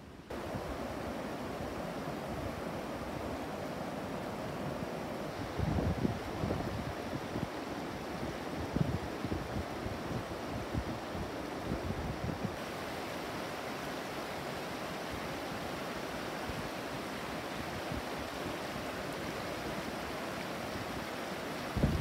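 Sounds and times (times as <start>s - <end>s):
stream running over stones: 5.1s - 22.0s.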